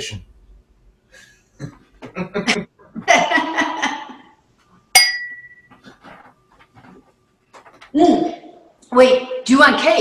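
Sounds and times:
people laughing: 1.6s - 4.4s
sharp ringing clink: 5.0s - 5.7s.

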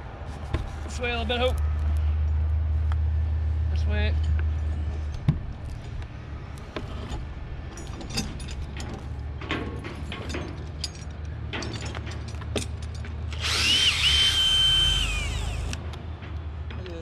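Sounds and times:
cordless drill whine: 13.4s - 15.8s.

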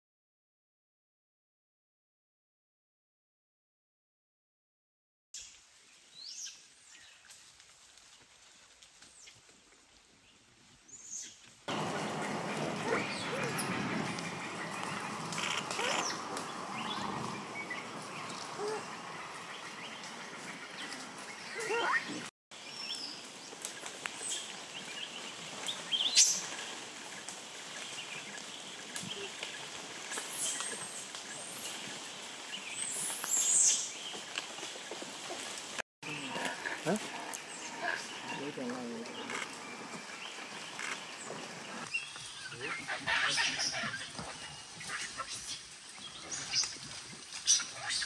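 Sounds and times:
quiet forest background: 5.4s - 48.0s
outdoor background hiss: 10.7s - 21.6s
faint high bird calls: 10.9s - 22.2s.

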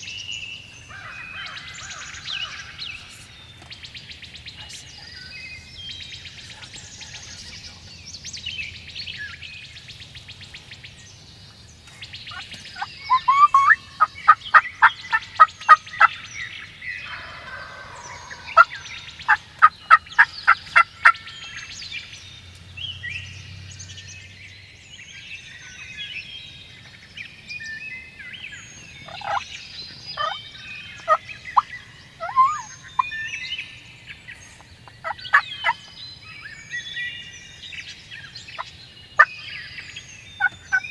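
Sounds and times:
songbirds chirping: 0.0s - 40.9s
wild turkeys yelping: 12.3s - 16.2s, 17.0s - 21.7s, 29.0s - 29.6s, 30.2s - 33.2s, 34.8s - 35.9s.

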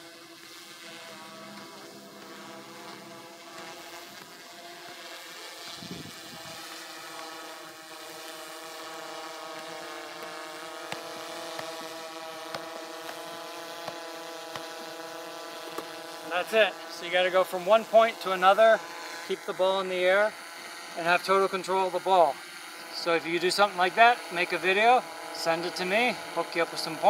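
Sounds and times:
drone propellers humming: 0.0s - 27.0s
football taps: 13.8s - 14.7s.

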